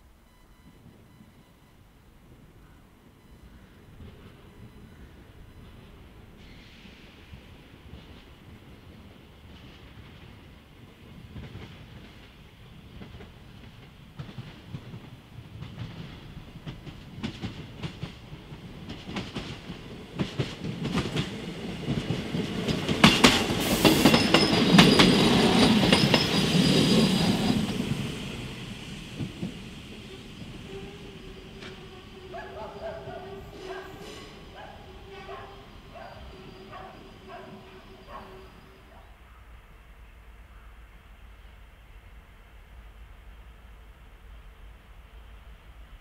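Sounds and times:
diesel railcar rumble: 2.1 - 46.0
train wheels clacking over rail joints: 13.0 - 27.4.

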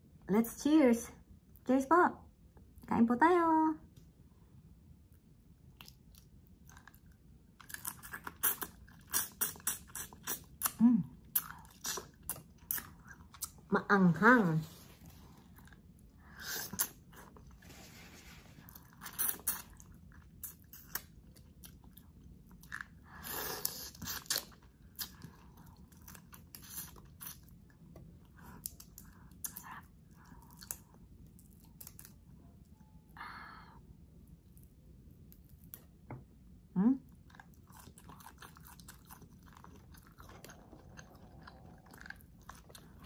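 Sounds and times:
chewing and crunching: 5.1 - 13.7, 14.7 - 32.8, 37.0 - 43.0.

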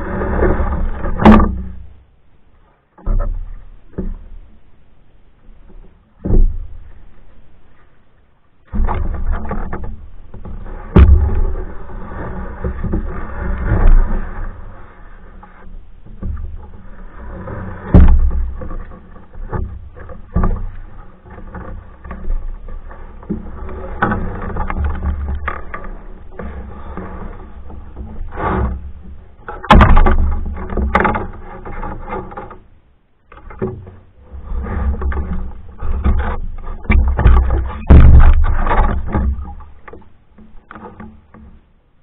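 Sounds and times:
paddle water swishes: 0.0 - 42.0
sharp knocks: 8.7 - 11.7, 17.8 - 22.4, 29.5 - 31.2, 35.9 - 41.5.

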